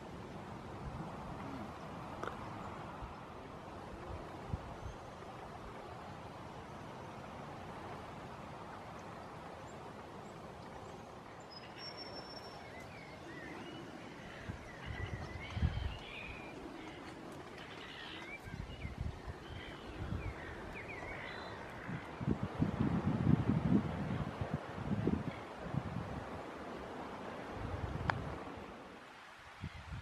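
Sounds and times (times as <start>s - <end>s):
wind buffeting microphone: 0.0s - 6.4s, 12.9s - 28.8s, 29.5s - 30.0s
steady outdoor hiss: 0.0s - 30.0s
birds chirping: 8.8s - 22.3s.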